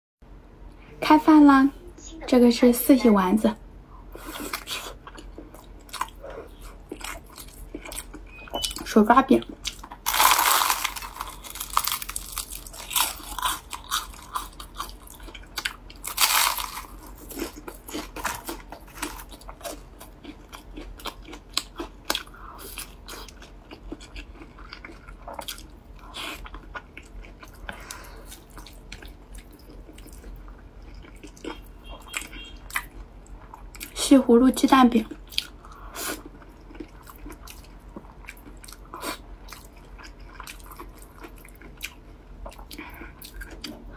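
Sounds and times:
chewing with mouth clicks: 4.2 - 8.9, 9.5 - 34.0, 35.1 - 43.9
crunching bite into flatbread: 10.1 - 14.4, 16.1 - 19.2.

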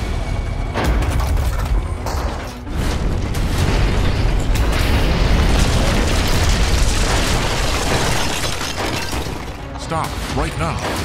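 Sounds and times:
background music: 0.0 - 11.0
crashing debris: 0.7 - 11.0
brick wall smashing rumble: 2.7 - 9.8.

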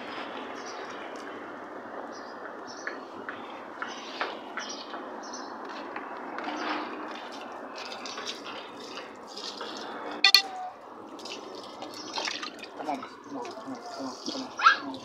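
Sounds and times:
brief high chirps: 10.3 - 10.6
water sloshing in bucket: 11.1 - 13.2.

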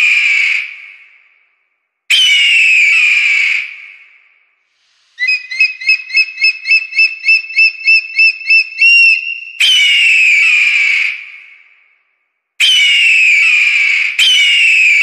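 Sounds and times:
short whistle pips: 5.0 - 10.3
held whistle note: 5.2 - 10.4
breathy whistle falling in pitch: 6.7 - 10.4.

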